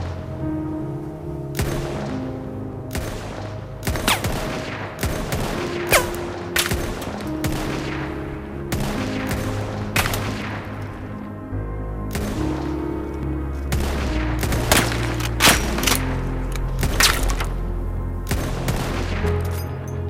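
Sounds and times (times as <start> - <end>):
film score of held notes: 0.0 - 20.0
gunshots: 1.6 - 11.1, 12.1 - 12.9, 13.7 - 17.6, 18.3 - 19.7.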